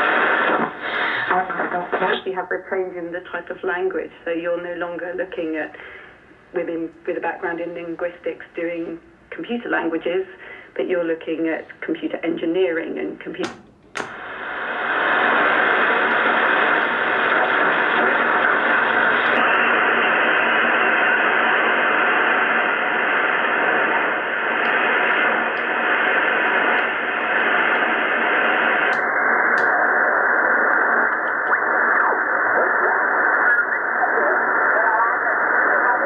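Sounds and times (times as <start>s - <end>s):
radio static hiss: 0.0s - 36.0s.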